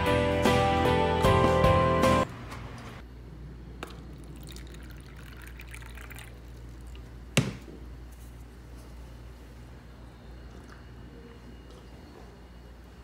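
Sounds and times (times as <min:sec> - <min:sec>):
water trickling into a cup: 0:03.9 - 0:07.1.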